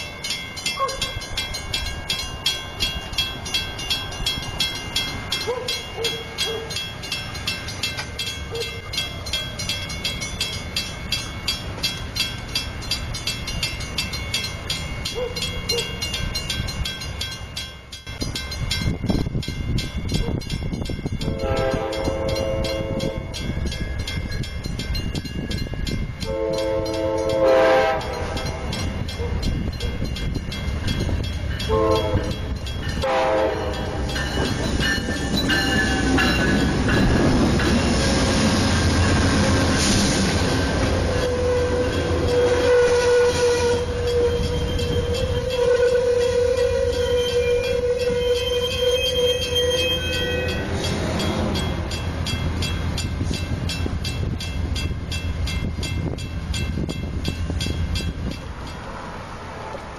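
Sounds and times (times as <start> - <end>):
diesel train rumbling past: 0.0 - 59.9
locomotive horn blasts: 21.2 - 23.4, 26.2 - 28.8, 31.7 - 34.2, 40.8 - 51.4
train brakes squealing: 34.2 - 51.8.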